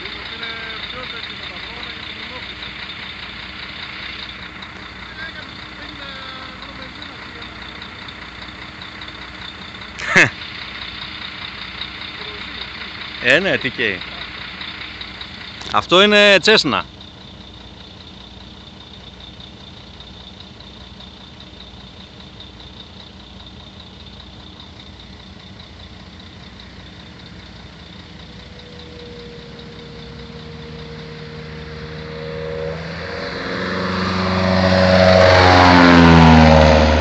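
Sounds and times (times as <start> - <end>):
light aircraft passing overhead: 28.2 - 37.0.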